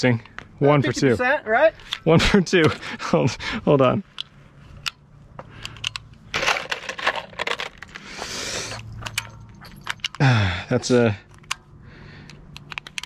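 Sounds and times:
brass cartridges clinking: 8.7 - 11.6.

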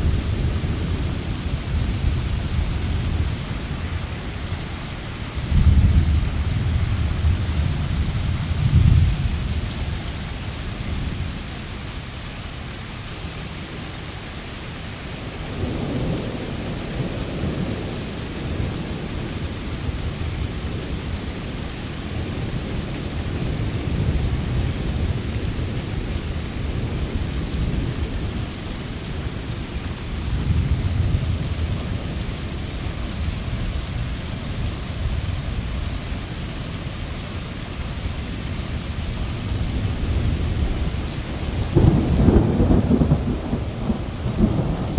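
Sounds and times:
steady rain: 0.0 - 44.9
rolling thunder: 5.4 - 9.7, 29.3 - 32.5, 39.4 - 44.9.

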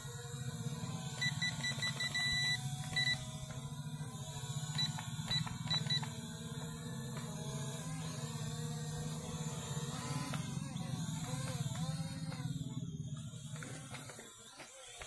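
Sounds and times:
drone hovering hum: 0.0 - 14.7
rapid high-pitched electronic beeps: 1.2 - 3.3, 4.8 - 6.1.

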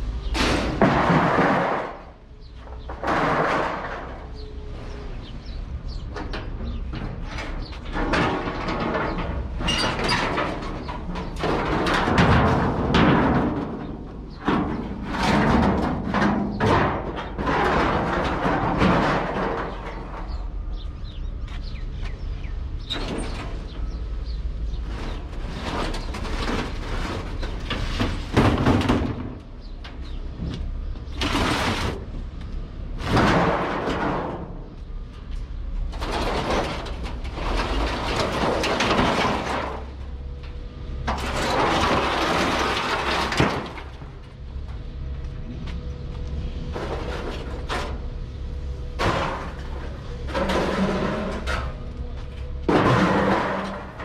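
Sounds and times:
low steady rumble: 5.4 - 54.0
sheet metal scraping: 6.7 - 20.5, 24.7 - 29.4, 46.6 - 54.0.

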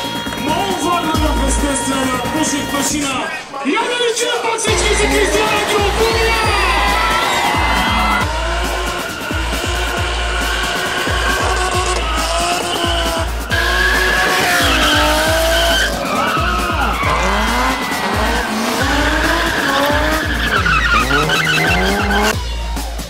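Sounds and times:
heavy-beat music: 0.0 - 23.0
car engine revving: 4.7 - 22.4
tyres squealing: 4.7 - 22.4.

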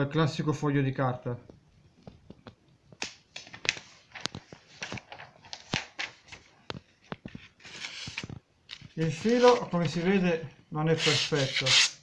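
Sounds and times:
paper rustling: 3.3 - 10.2.

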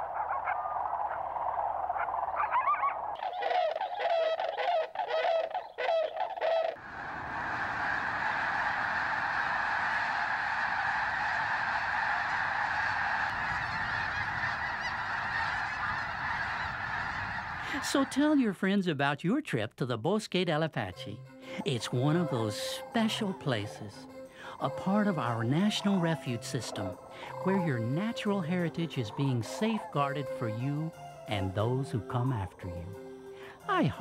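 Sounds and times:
flock of waterbirds honking: 3.2 - 18.2, 21.6 - 31.8.

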